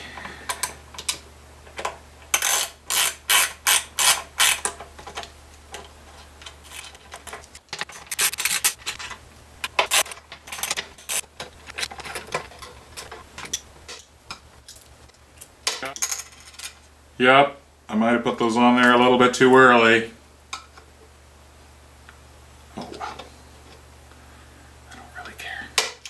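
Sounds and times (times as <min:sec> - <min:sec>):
metallic clicks and rattles: 0:01.8 - 0:14.9.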